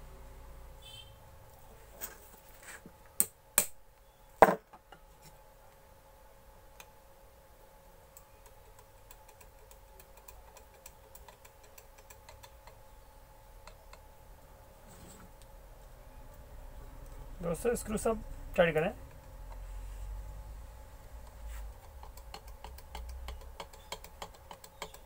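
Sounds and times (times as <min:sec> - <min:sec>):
light clicking and ticking: 0:08.1 - 0:12.8, 0:21.1 - 0:25.0.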